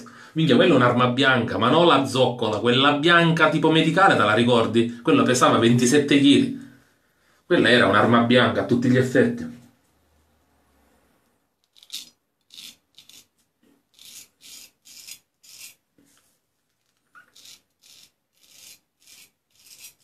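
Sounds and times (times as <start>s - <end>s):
razor scraping stubble: 11.6s - 15.8s, 16.8s - 20.0s.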